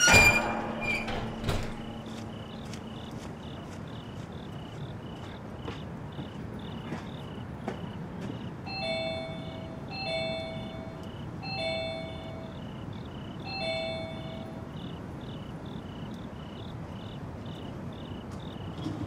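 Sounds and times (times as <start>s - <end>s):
insects chirping: 0.0s - 19.0s
two-note ringing chime: 8.7s - 12.6s, 13.5s - 14.6s.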